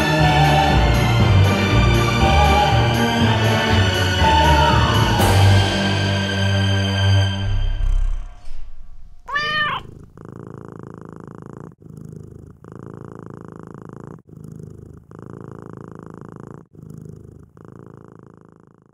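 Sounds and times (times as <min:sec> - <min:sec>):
cat purring: 0:07.4 - 0:18.9
cat meowing: 0:09.2 - 0:10.1.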